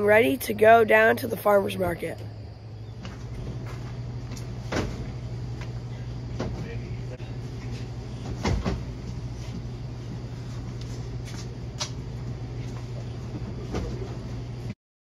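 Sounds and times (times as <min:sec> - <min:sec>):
steady low hum: 0:00.0 - 0:14.8.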